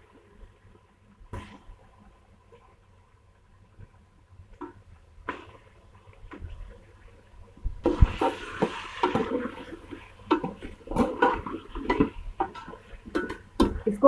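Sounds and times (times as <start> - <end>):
chicken sizzling in hot oil: 5.2 - 14.0.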